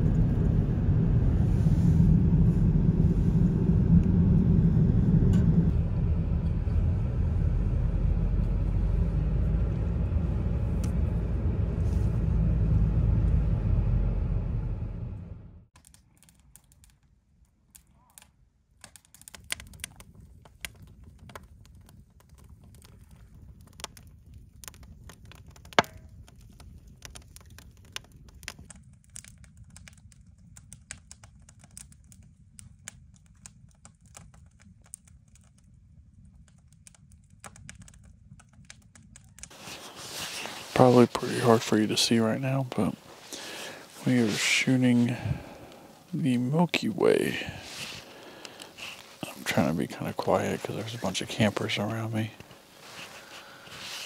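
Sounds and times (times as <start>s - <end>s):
car road noise: 0.0s - 15.7s
campfire crackling and popping: 15.7s - 54.0s.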